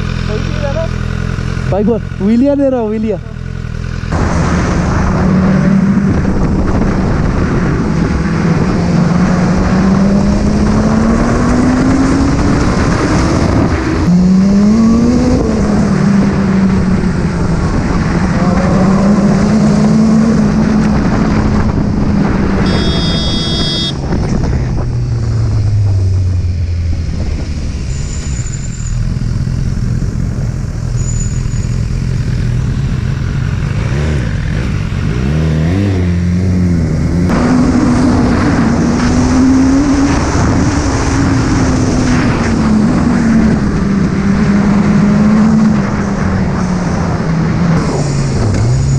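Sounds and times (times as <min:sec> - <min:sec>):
motorcycle engine revving: 0:00.0 - 0:48.9
wind rush on microphone: 0:04.1 - 0:28.6, 0:37.2 - 0:48.9.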